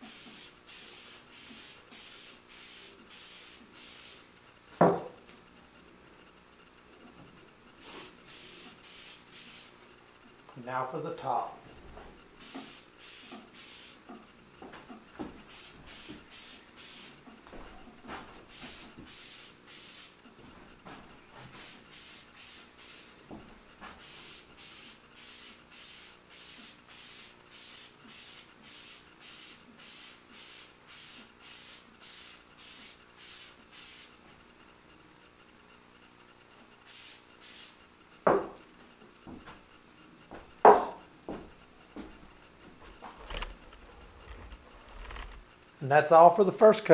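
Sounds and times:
aerosol can hissing bursts: 0:00.0 - 0:04.3, 0:07.8 - 0:09.8, 0:12.4 - 0:14.1, 0:15.5 - 0:17.2, 0:18.5 - 0:20.2, 0:21.5 - 0:23.2, 0:24.0 - 0:34.2, 0:36.8 - 0:37.8.

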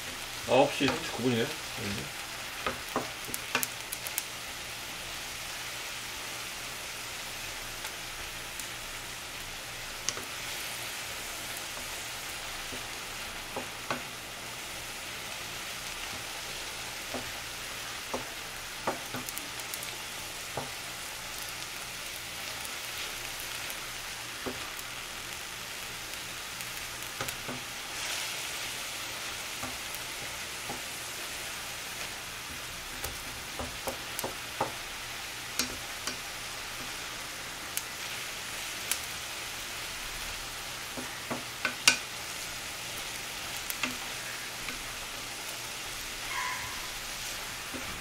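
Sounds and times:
vegetables sizzling in a frying pan: 0:00.0 - 0:48.0
wooden spatula clicking on pan: 0:02.6 - 0:03.7, 0:35.6 - 0:36.2, 0:41.0 - 0:42.0.

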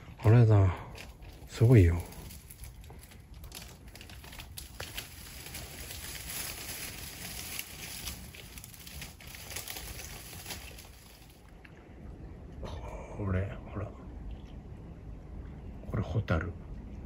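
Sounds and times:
faint rustling and crackling: 0:00.0 - 0:11.8.

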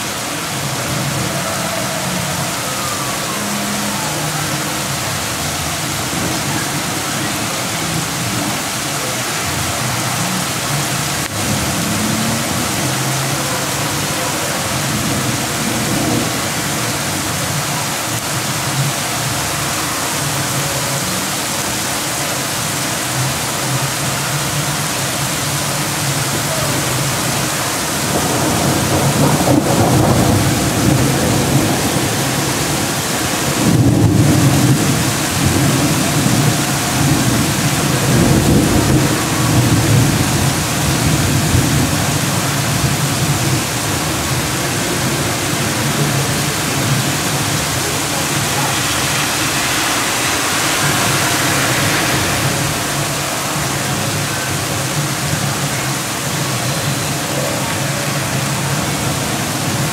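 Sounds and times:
heavy rain pouring: 0:00.0 - 0:59.9
low rumble of thunder: 0:27.9 - 0:55.7.

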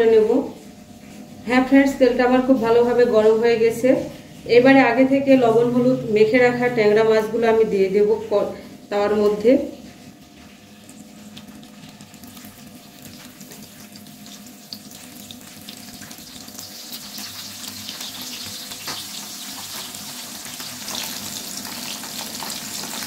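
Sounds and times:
fish sizzling in hot oil: 0:09.8 - 0:23.0.

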